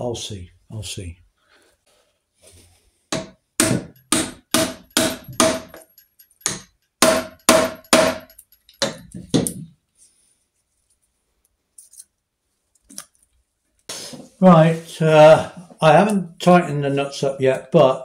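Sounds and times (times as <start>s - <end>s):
mallet tapping metal: 3.2s - 9.0s.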